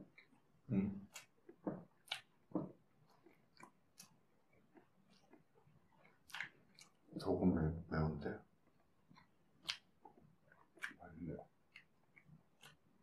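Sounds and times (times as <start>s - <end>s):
person chewing food: 0.0s - 7.2s, 8.6s - 13.0s.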